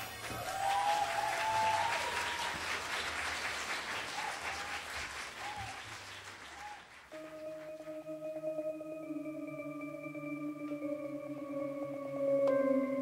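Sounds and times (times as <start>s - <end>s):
audience applauding: 0.0s - 8.2s
steady held musical tone: 7.1s - 13.0s.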